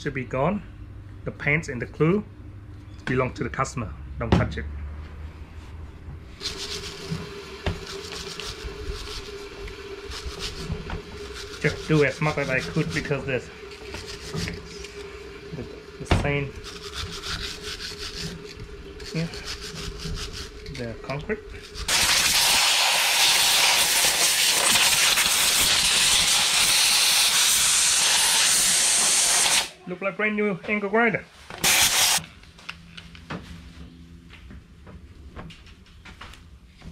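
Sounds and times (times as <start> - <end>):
steady hum: 0.0 - 30.6
wire brush scrubbing metal: 6.4 - 15.1, 16.2 - 20.9, 21.6 - 29.7, 31.6 - 32.2
air blow gun hissing: 21.7 - 29.8, 31.6 - 32.2.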